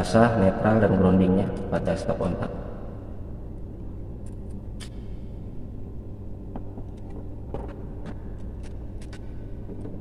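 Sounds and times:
low background rumble: 0.0s - 10.0s.

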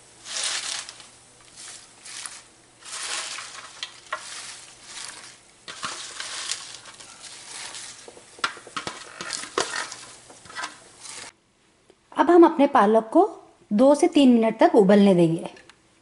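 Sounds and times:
spinach leaves rustling: 0.0s - 11.3s
plastic tub crackling and clicking: 7.6s - 10.8s.

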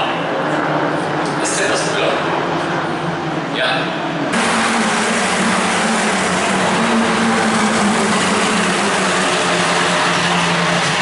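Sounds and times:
race cars at high revs: 4.3s - 11.0s.

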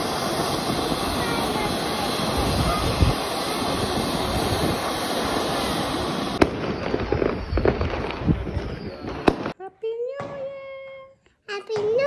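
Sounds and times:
firework bang: 0.0s - 9.6s
firework fountain crackling hiss: 0.0s - 9.6s
aerial firework pops: 6.3s - 9.6s.

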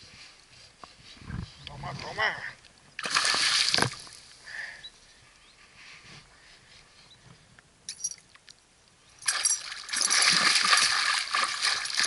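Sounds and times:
fish splashing at the surface: 3.0s - 4.0s, 9.2s - 12.0s.

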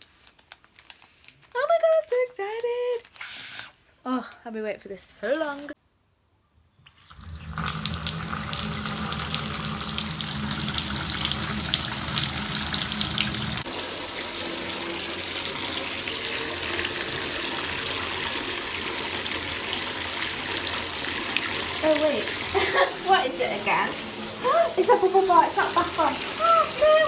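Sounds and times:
tap running into bathtub: 6.9s - 14.4s.

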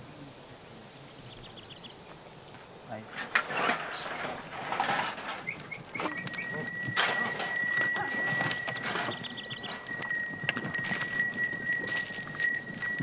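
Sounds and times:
hooves trampling on dirt: 1.9s - 13.0s
high ringing tone: 6.0s - 13.0s.

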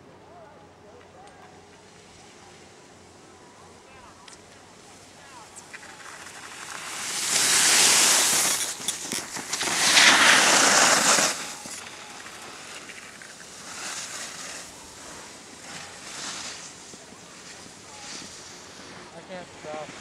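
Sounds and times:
skis scraping across snow: 4.8s - 20.0s.

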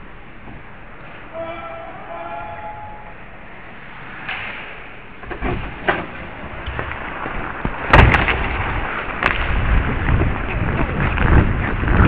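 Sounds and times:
ice skates scraping and gliding: 6.2s - 12.0s.

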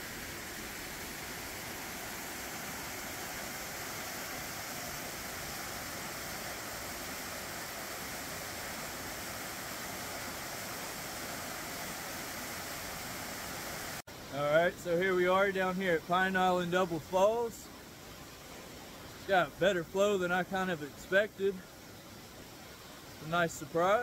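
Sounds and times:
waterfall rushing: 0.0s - 15.0s.

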